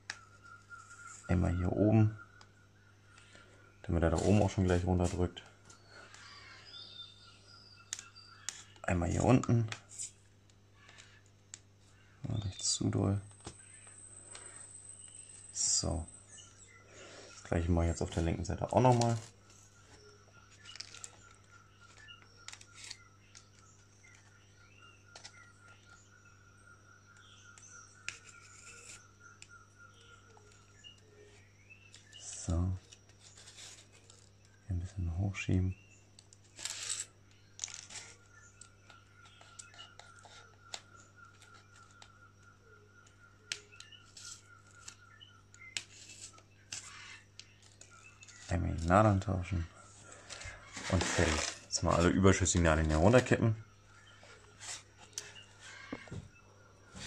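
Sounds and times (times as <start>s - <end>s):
scratchy paper rustles: 4.1s - 5.4s, 32.8s - 34.4s, 36.4s - 38.3s, 49.7s - 52.3s, 54.0s - 56.0s.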